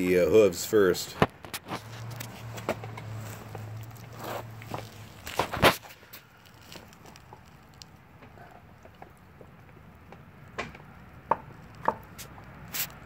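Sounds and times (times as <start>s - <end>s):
bone cracking: 3.6s - 9.3s.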